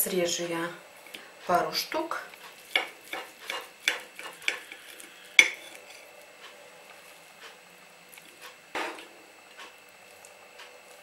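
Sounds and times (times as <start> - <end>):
knife cutting food: 2.4 - 6.1
knife scraping plate: 2.5 - 6.5.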